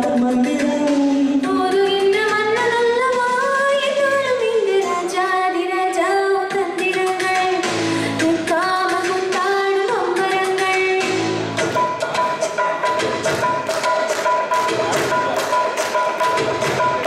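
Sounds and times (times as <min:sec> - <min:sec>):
woman singing into a microphone: 0:00.0 - 0:11.4
karaoke backing track: 0:00.0 - 0:17.0.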